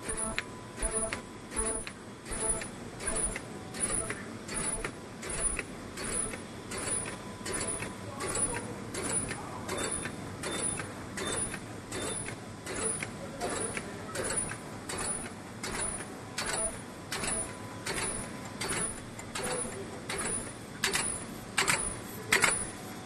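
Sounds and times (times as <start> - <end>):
machine humming: 0.0 - 8.4
sharp mechanical clacking: 0.0 - 22.8.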